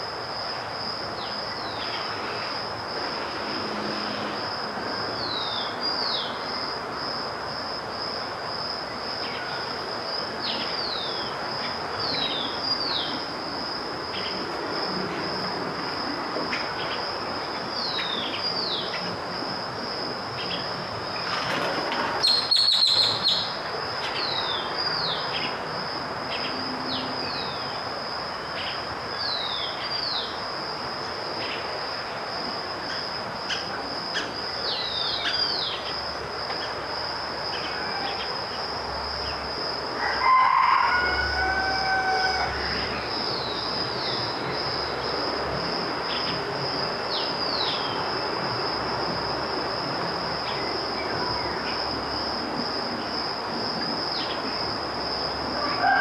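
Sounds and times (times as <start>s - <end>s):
loud pitched bird call: 22.2s - 23.6s.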